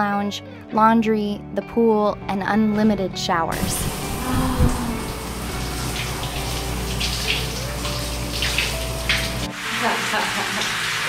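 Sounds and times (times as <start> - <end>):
low rumble: 3.5 - 6.3
shower water splashing on tiles: 3.6 - 11.0.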